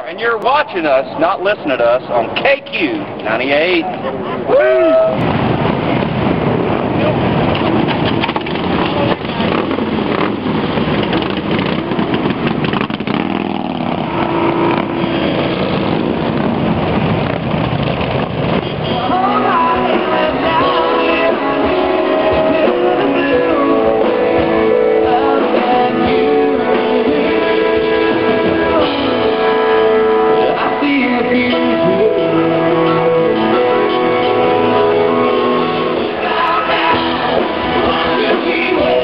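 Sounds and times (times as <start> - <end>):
motorcycles rumbling: 0.0 - 39.0
drums: 5.0 - 39.0
acoustic guitar: 5.2 - 39.0
person singing: 18.9 - 39.0.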